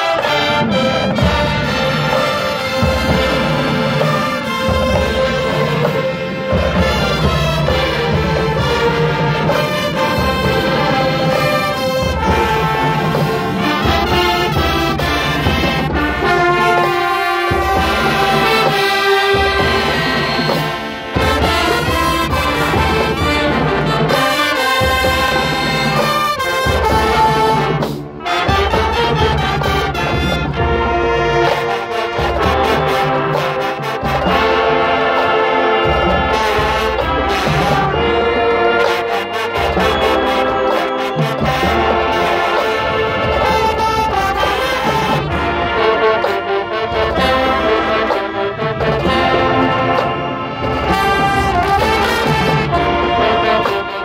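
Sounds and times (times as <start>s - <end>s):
brass marching band playing: 0.0s - 54.0s.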